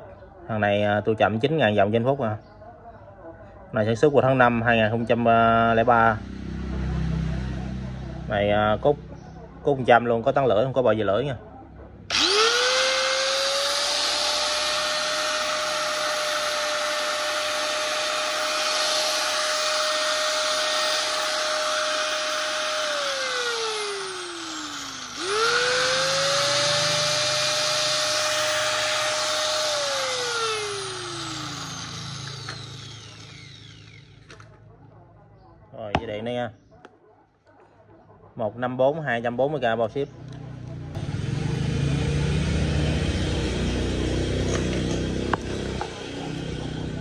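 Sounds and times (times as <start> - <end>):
angle grinder whining: 12.1 - 34.6, 42.3 - 47.0.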